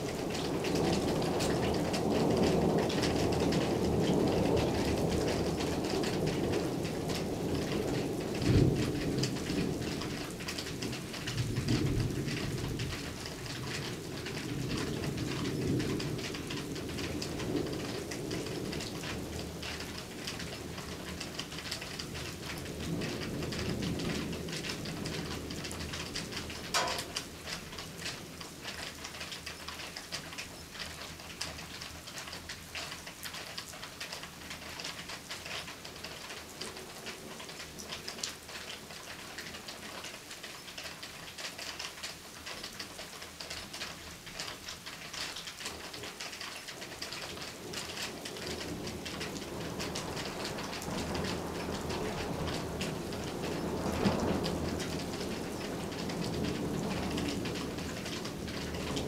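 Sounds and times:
thunder rumbling: 0.0s - 29.9s, 45.1s - 59.0s
heavy rain: 0.0s - 59.0s
raindrops ticking: 0.0s - 59.0s.

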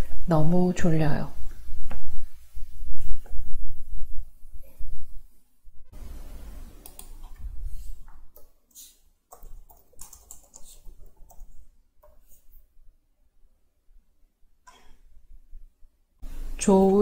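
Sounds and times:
keyboard keystroke clicks: 6.8s - 7.4s.

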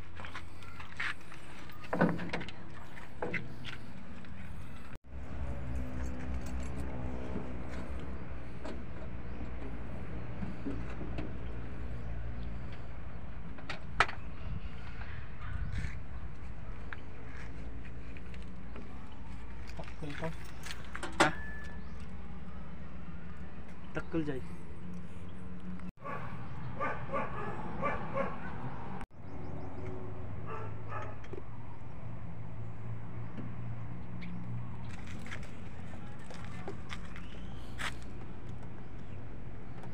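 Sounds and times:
low engine hum: 0.0s - 39.9s
dog calls: 26.0s - 28.6s.

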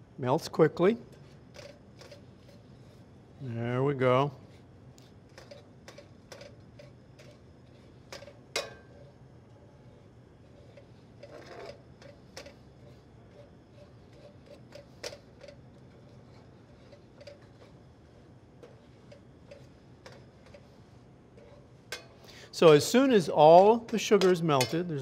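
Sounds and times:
metal spoon scraping a pan: 1.1s - 3.0s, 4.5s - 9.2s, 9.8s - 22.4s.

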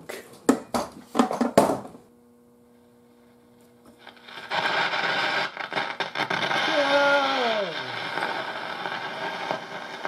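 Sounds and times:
faint steady hum: 0.0s - 10.0s
radio speaker rushing crackle: 4.1s - 10.0s.

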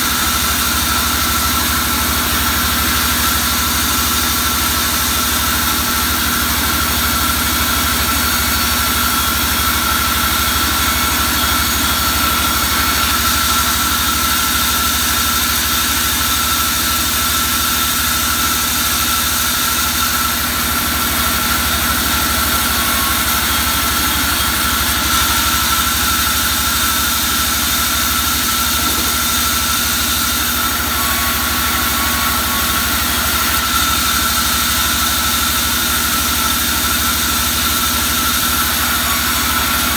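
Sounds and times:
band saw droning: 0.0s - 39.9s.

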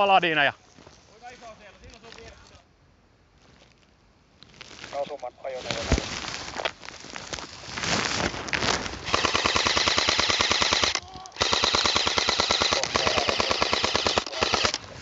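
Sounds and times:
rustling: 0.0s - 2.6s, 3.3s - 13.2s, 14.2s - 15.0s
airsoft gun full-auto bursts: 9.0s - 14.8s.

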